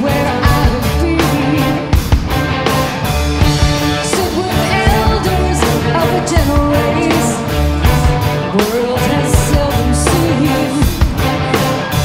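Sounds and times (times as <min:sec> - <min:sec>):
woman singing lead: 0:00.0 - 0:02.1, 0:03.8 - 0:11.1
bass guitar: 0:00.0 - 0:12.0
drum kit beat: 0:00.0 - 0:12.0
electric guitars: 0:00.0 - 0:12.0.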